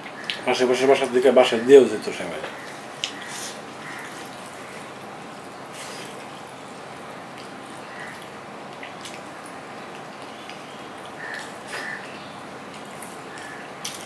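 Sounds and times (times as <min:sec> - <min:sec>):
steady background hiss: 0:00.0 - 0:14.0
chewing: 0:07.3 - 0:14.0.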